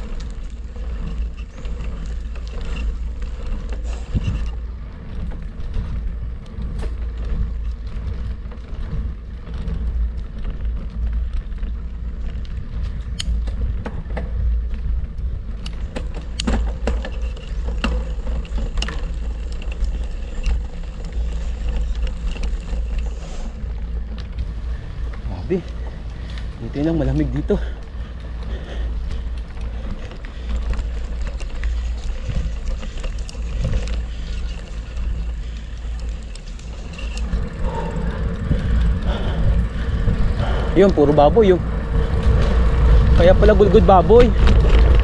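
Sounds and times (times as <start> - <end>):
bicycle clicks and rattles: 0.0 - 45.0
wind rumbling over microphone: 0.0 - 45.0.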